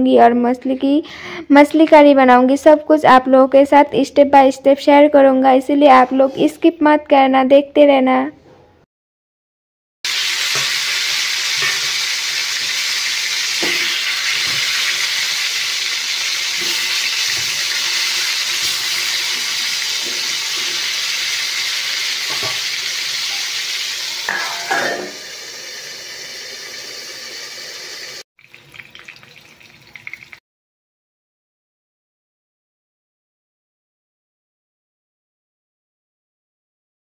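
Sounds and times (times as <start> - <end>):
eggplant sizzling in hot oil: 10.1 - 30.4.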